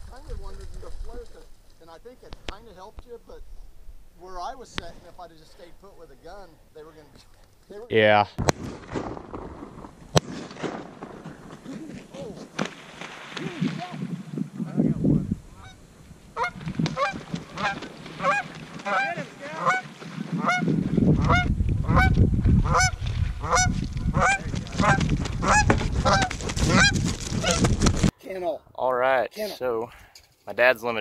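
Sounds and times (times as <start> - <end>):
goose honking: 15.6 - 27.6.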